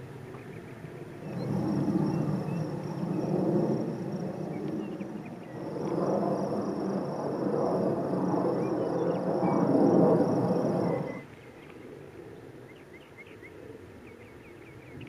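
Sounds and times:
wind buffeting microphone: 0:00.0 - 0:11.9
faint chirps: 0:01.2 - 0:11.8.

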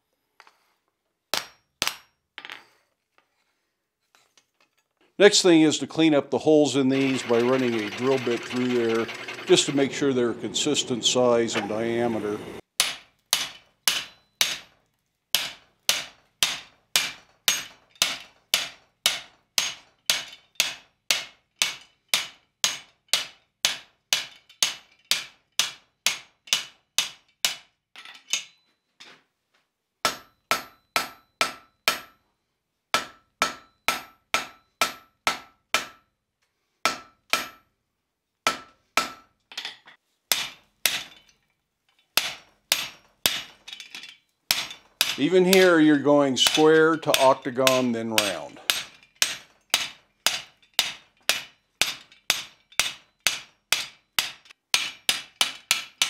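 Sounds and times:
hammer striking metal on anvil: 0:07.0 - 0:12.1, 0:12.8 - 0:14.7, 0:15.4 - 0:27.6, 0:30.0 - 0:32.2, 0:33.0 - 0:36.0, 0:36.9 - 0:37.7, 0:38.5 - 0:39.3, 0:40.3 - 0:41.3, 0:42.2 - 0:43.9, 0:44.5 - 0:56.0.

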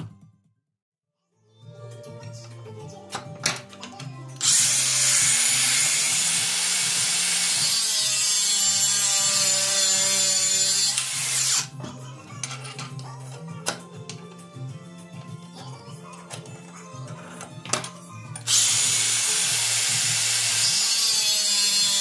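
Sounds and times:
angle grinder cutting metal: 0:04.4 - 0:11.8, 0:18.4 - 0:22.0
background music with beat: 0:13.0 - 0:19.0.

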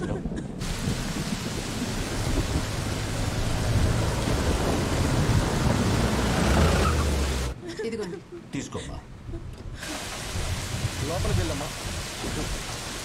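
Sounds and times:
low rumble of thunder: 0:00.5 - 0:07.3
heavy rain pouring: 0:00.6 - 0:07.6, 0:09.8 - 0:13.0.

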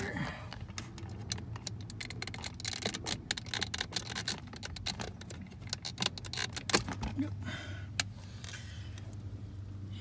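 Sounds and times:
plastic connector clicks and rattles: 0:00.5 - 0:07.2.

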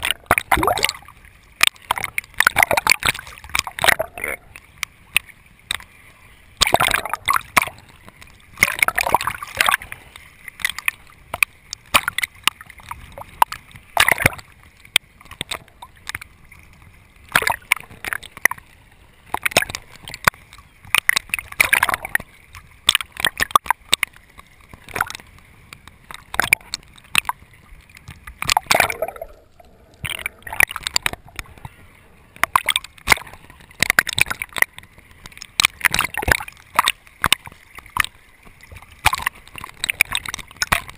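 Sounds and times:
water sloshing and splashing: 0:00.0 - 0:40.9.

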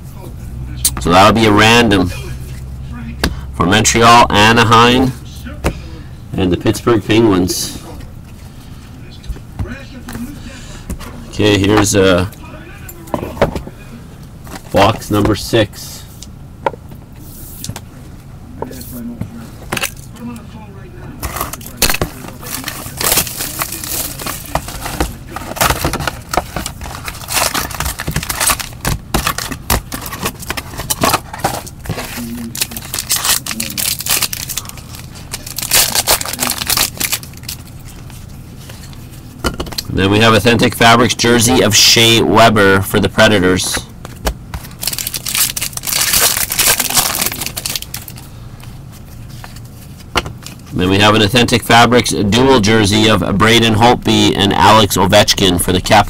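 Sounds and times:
cards shuffling and rustling: 0:21.2 - 0:39.4, 0:44.0 - 0:51.0
packaging crinkling and tearing: 0:21.3 - 0:38.3, 0:44.6 - 0:48.3.

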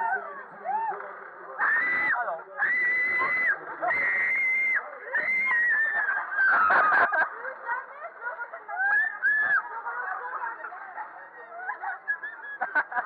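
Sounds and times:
whoops and yells: 0:00.0 - 0:01.0, 0:01.6 - 0:07.0, 0:08.8 - 0:09.6.

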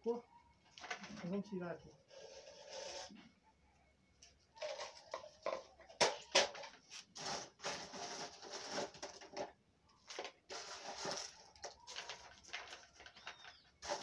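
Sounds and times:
bark pieces rustling and clattering: 0:04.6 - 0:14.0.

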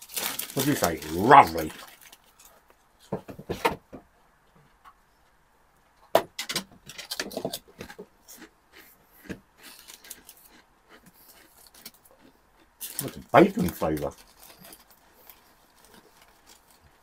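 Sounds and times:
foil crisp packet rustling: 0:00.0 - 0:02.6, 0:09.6 - 0:10.6, 0:12.8 - 0:17.0
crisps crunching when chewed: 0:00.0 - 0:02.7, 0:07.1 - 0:17.0.

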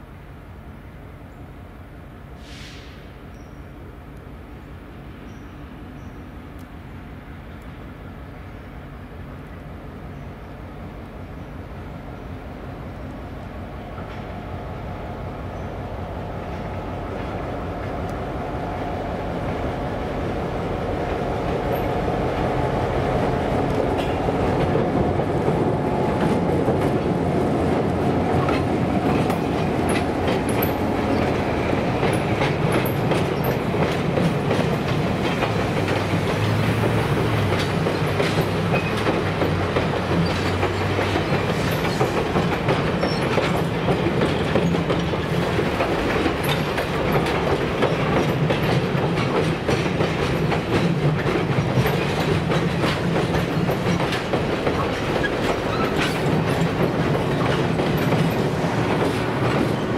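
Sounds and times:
train rolling over steel bridge: 0:00.0 - 0:59.9
wheels clicking over rail joints: 0:23.6 - 0:59.9.

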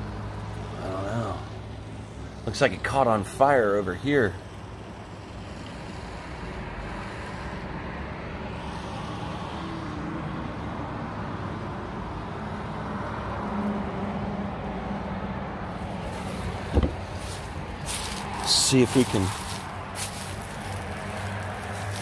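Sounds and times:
vehicle driving past: 0:12.8 - 0:22.0
short thump: 0:16.6 - 0:17.4.

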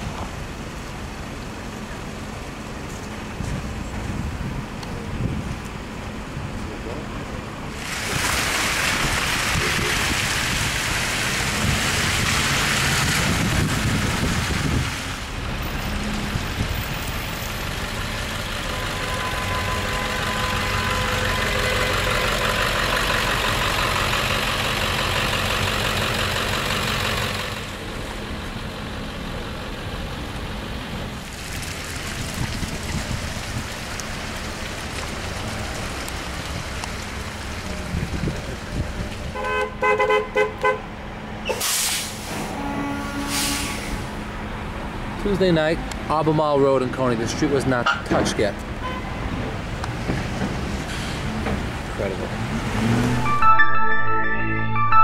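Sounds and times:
vehicle engines idling: 0:00.0 - 0:08.0, 0:09.0 - 0:39.4.

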